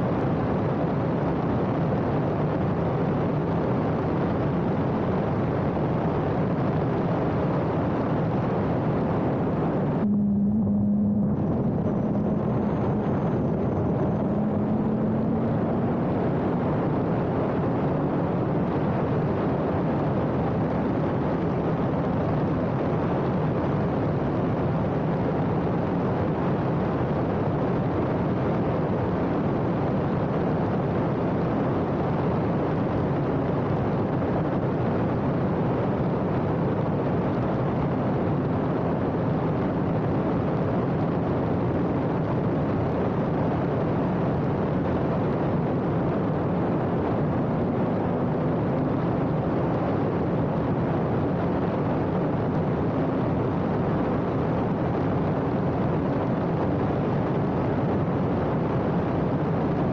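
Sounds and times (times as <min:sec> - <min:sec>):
wind rush: 0:00.2 - 0:59.9
race car engine: 0:08.4 - 0:18.8, 0:44.0 - 0:50.4.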